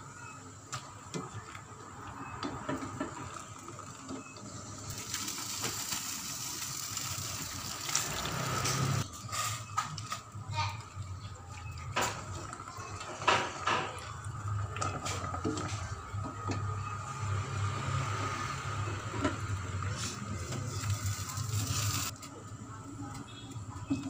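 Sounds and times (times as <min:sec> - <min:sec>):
water boiling in a pot: 0:00.8 - 0:24.0.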